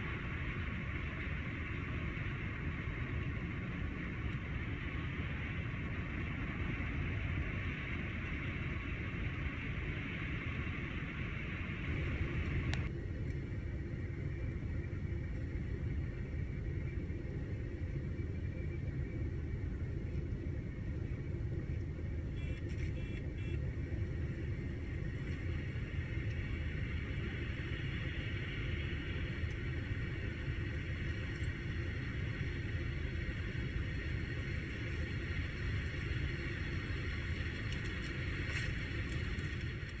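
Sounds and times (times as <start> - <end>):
engine and road rumble: 0.0 - 18.3.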